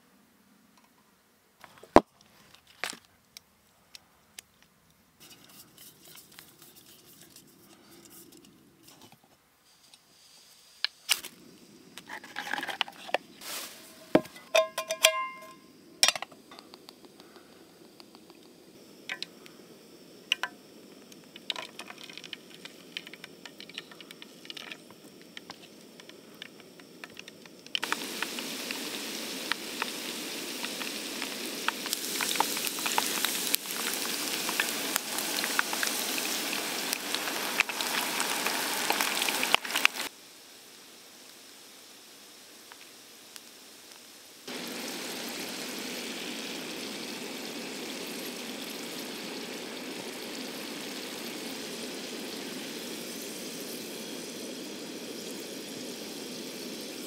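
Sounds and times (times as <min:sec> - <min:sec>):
potato sizzling in hot fat: 0:05.2 - 0:09.0, 0:09.6 - 0:57.0
pan ringing: 0:13.8 - 0:16.2
metal cookware clinking: 0:13.8 - 0:16.3.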